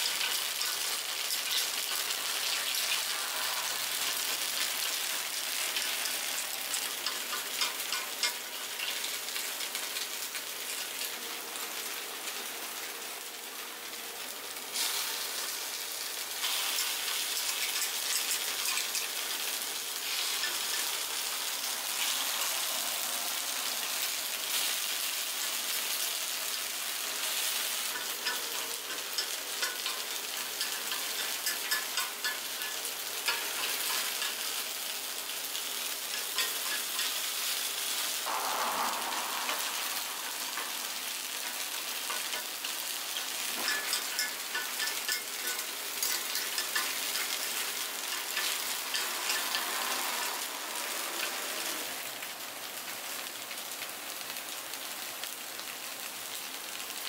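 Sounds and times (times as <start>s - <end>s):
batter sizzling in a pan: 0.0s - 57.0s
metal picks ticking on iron: 27.9s - 34.4s, 43.6s - 49.6s.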